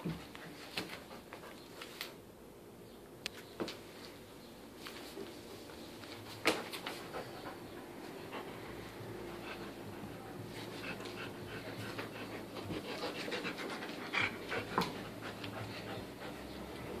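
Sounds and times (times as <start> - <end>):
puppy panting: 6.5 - 17.0.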